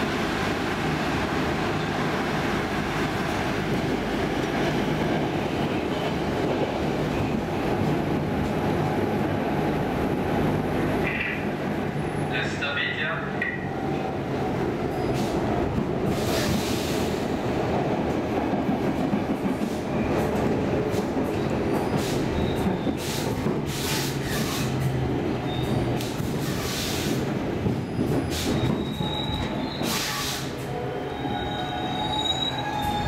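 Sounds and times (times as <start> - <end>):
train wheels rumbling on rails: 0.0 - 33.0
thin squeal of train: 21.7 - 33.0.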